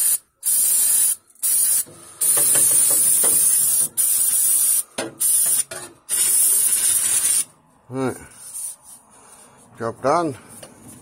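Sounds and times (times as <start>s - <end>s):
aerosol spray can hissing: 0.0s - 5.6s.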